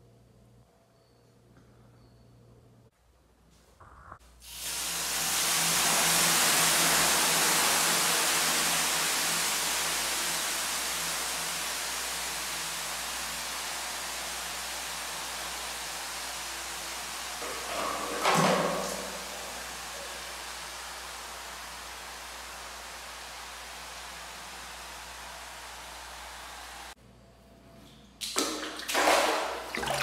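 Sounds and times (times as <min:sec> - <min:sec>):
steam hissing on hot stones: 0:04.4 - 0:27.0.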